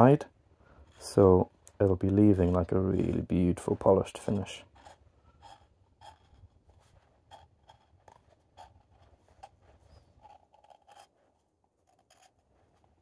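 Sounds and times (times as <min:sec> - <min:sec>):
knife scraping wood shavings: 0:02.2 - 0:13.0.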